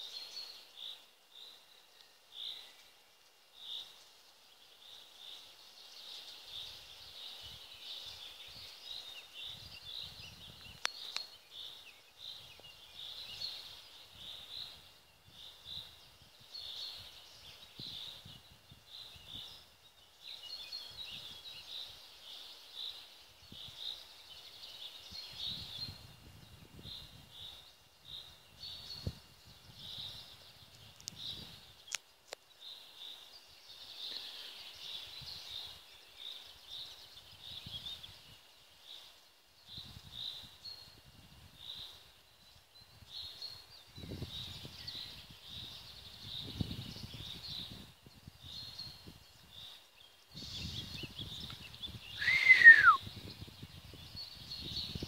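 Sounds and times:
birds chirping and singing: 0:41.6 - 0:55.0.

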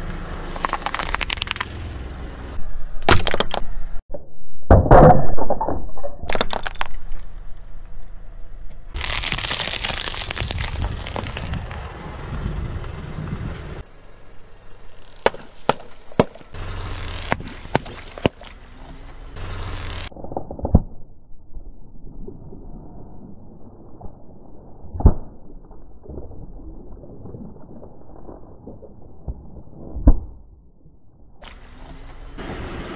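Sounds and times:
crispbread crunching and cracking: 0:06.3 - 0:07.3, 0:08.9 - 0:11.8
water balloons squashed: 0:06.3 - 0:07.4, 0:09.0 - 0:11.7, 0:15.0 - 0:20.1
liquid splashing: 0:15.2 - 0:19.2.

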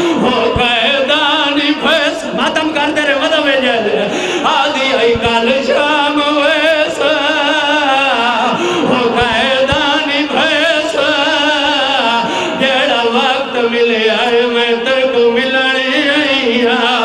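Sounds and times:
man singing through loudspeakers: 0:00.0 - 0:17.0.

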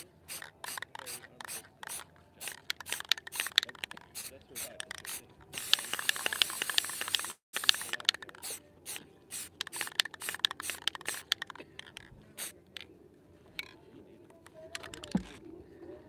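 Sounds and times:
spray paint can hissing: 0:00.0 - 0:12.6.

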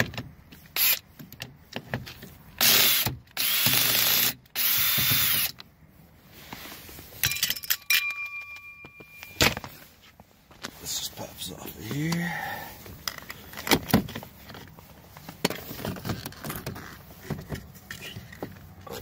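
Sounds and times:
cordless drill whining: 0:02.6 - 0:05.6.

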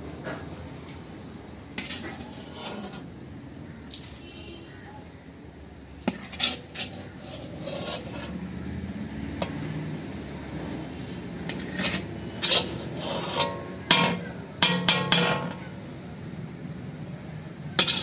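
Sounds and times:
metal spatula scraping pan: 0:01.7 - 0:03.2, 0:06.0 - 0:08.6, 0:10.7 - 0:15.8, 0:17.6 - 0:18.0
spatula clinking against pan: 0:13.4 - 0:15.7.

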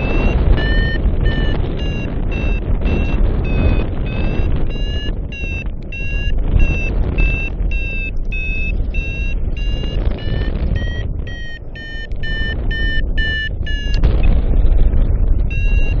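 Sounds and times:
variometer short beeps: 0:00.0 - 0:14.1, 0:15.5 - 0:16.0
wind over microphone: 0:00.0 - 0:16.0.

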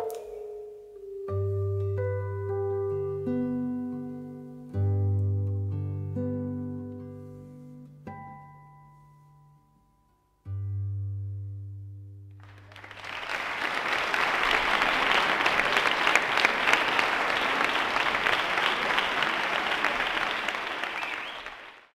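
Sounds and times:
audience applause: 0:12.4 - 0:22.0.

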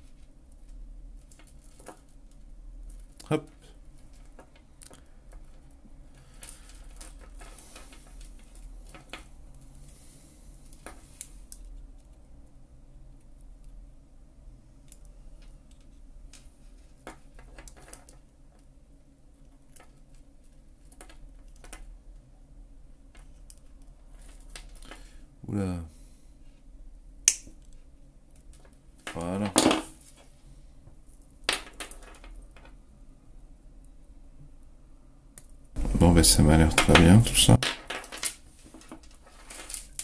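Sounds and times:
pliers clicking on wire: 0:27.3 - 0:27.7.

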